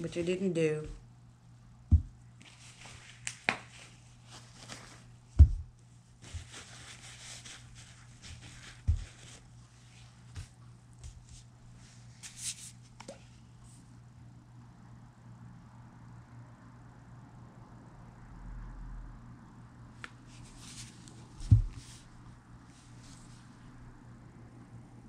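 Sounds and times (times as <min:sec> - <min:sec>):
rustling: 0:02.0 - 0:12.8.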